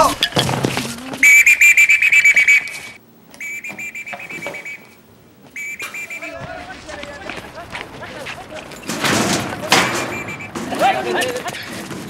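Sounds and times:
trilling whistle blasts: 1.2 - 6.4, 9.8 - 10.6.

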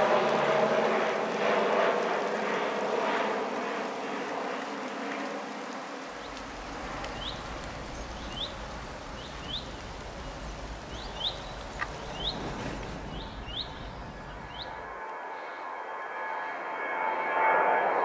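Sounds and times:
steady rushing hiss: 0.0 - 15.5
small birds chirping: 5.6 - 14.9.

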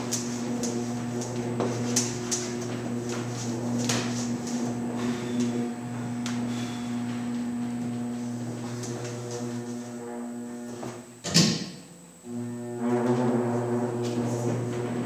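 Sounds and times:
turntable drive humming with whine: 0.0 - 11.2, 12.1 - 15.0.

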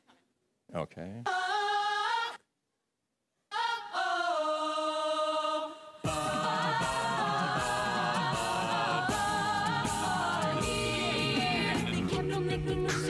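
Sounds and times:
song over sound system: 6.1 - 13.0.

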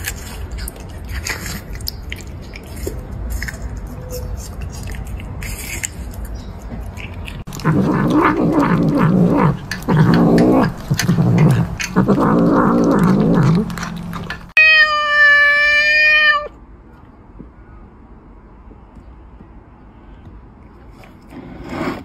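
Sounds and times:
cat yowling and growling: 7.5 - 16.6.

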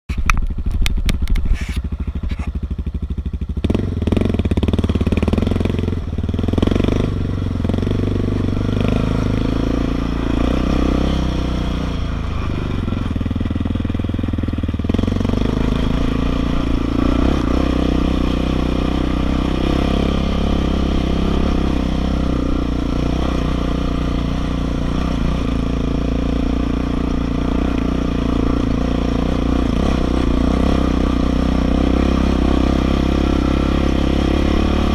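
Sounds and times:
quad engine revving: 0.8 - 34.9.

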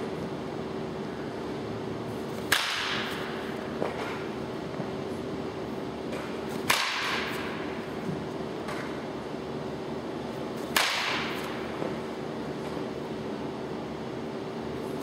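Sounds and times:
steady hum: 0.0 - 15.0
bat cracking against ball: 2.4 - 4.3, 6.1 - 7.8, 10.6 - 12.0.

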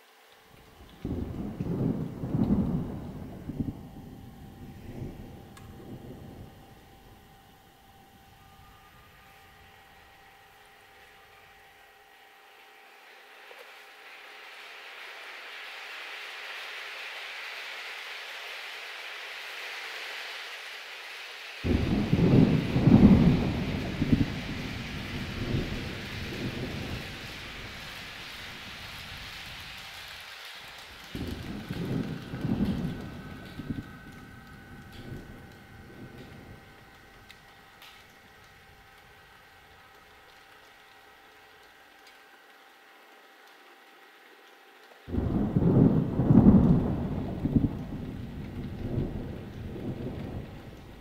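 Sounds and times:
rain hiss: 0.0 - 51.0
thunder rumbling: 0.6 - 11.6, 21.6 - 41.0, 45.1 - 51.0.

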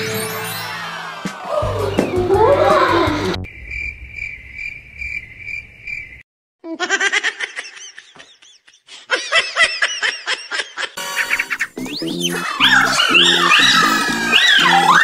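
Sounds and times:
cricket chirping: 3.5 - 6.2
high-pitched squeaky giggling: 10.3 - 15.0.

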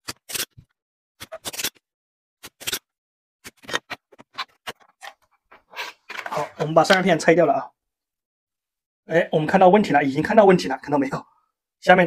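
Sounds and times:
circuit board scraping on surface: 3.5 - 6.7.

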